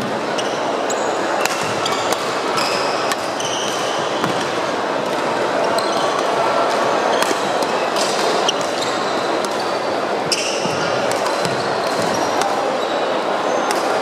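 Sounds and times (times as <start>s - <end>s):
din of busy hall: 0.0s - 14.0s
rackets hitting shuttlecock: 1.4s - 5.3s, 5.9s - 9.7s, 10.3s - 12.7s.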